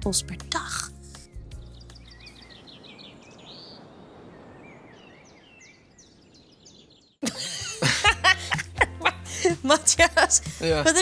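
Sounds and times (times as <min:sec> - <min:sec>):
small birds chirping: 0:00.4 - 0:07.2.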